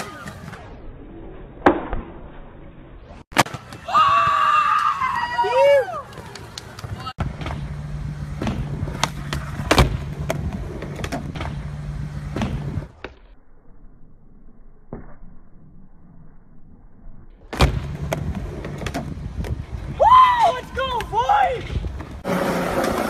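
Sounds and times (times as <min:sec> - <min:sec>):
skateboard wheels rolling on concrete: 0:00.0 - 0:01.6, 0:02.3 - 0:13.3, 0:17.4 - 0:23.0
skateboard clacks: 0:08.3 - 0:11.6.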